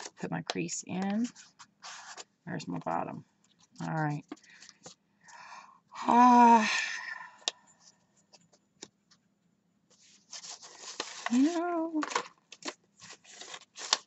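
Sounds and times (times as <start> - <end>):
paper rustling and crinkling: 0.0 - 0.2, 1.0 - 2.3, 9.9 - 14.0.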